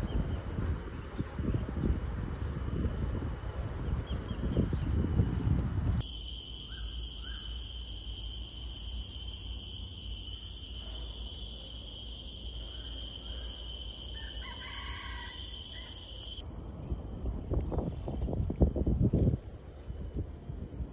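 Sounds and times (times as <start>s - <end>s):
high-pitched insect drone: 6.0s - 16.4s.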